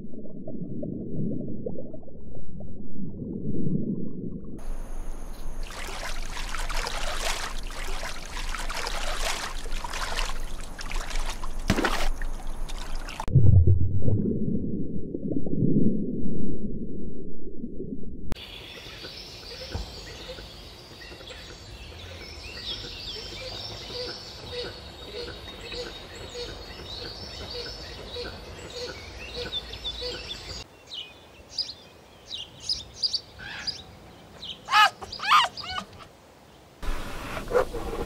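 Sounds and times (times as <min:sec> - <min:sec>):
shallow water splashing: 0:04.6 - 0:13.3
muffled underwater rumble: 0:13.2 - 0:18.4.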